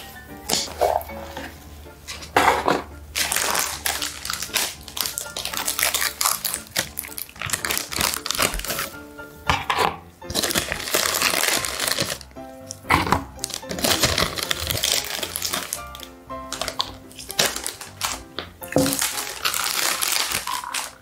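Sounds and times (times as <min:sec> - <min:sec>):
background music: 0:00.0 - 0:21.0
foil pouch crinkling: 0:03.2 - 0:09.0, 0:10.3 - 0:12.8, 0:13.4 - 0:21.0.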